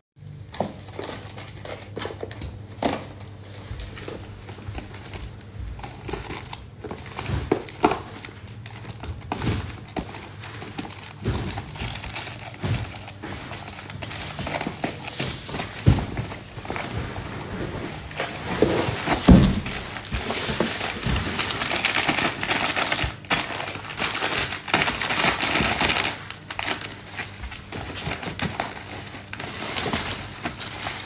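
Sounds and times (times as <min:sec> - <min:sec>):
plastic bags rustling: 0:00.4 - 0:31.0
small boxes clicking and tapping: 0:00.5 - 0:16.9.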